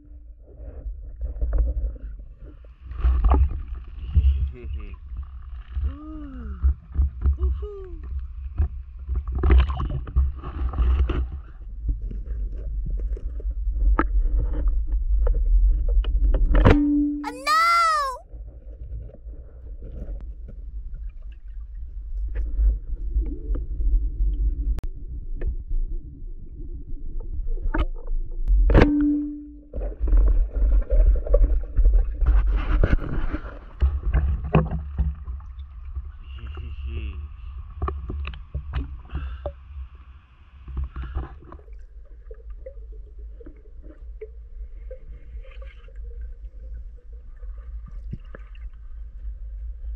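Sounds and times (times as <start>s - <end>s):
water sloshing and gurgling: 0.0s - 16.6s, 27.2s - 49.9s
muffled underwater rumble: 0.0s - 16.8s, 18.4s - 49.9s.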